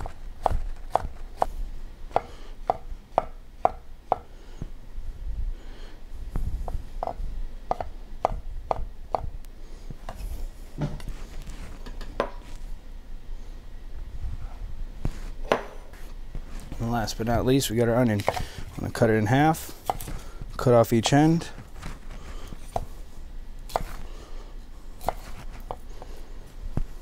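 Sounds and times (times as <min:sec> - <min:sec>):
knife chopping on wooden board: 0:02.1 - 0:04.3, 0:06.7 - 0:09.3, 0:15.4 - 0:15.8, 0:18.2 - 0:18.5, 0:19.8 - 0:20.2, 0:23.7 - 0:24.0, 0:25.0 - 0:25.8.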